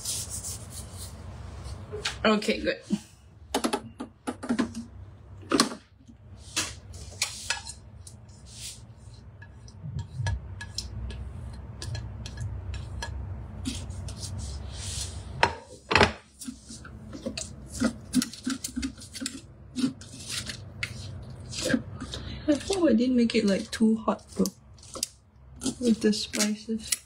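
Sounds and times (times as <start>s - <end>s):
spatula scraping metal bowl: 7.1s - 15.3s, 16.3s - 27.0s.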